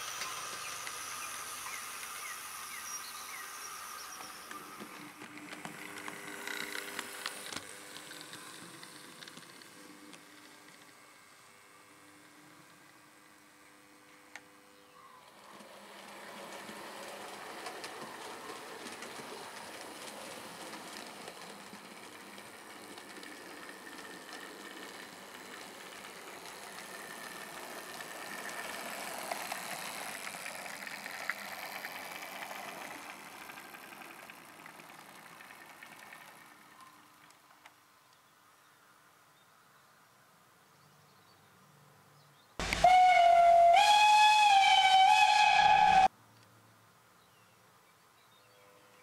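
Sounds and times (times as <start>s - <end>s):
model train motor whirring: 0.0s - 14.6s, 15.2s - 37.7s, 42.6s - 46.1s
wheel clicks over rail joints: 15.3s - 37.8s.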